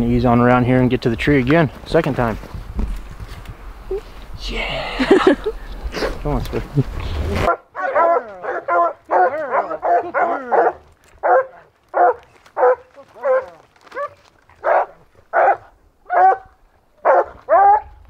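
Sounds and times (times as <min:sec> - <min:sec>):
dogs barking: 0:07.5 - 0:17.9.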